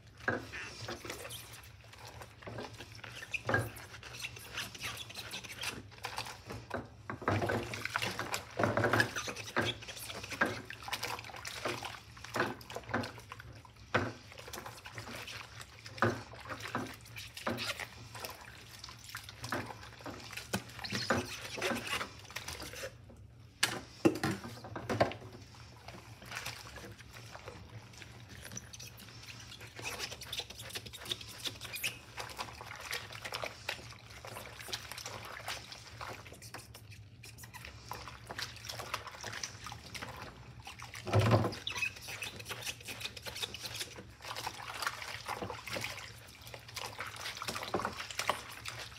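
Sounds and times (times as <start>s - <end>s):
soapy water sloshing: 0.0s - 48.9s
sponge rubbing on glass: 3.1s - 5.8s.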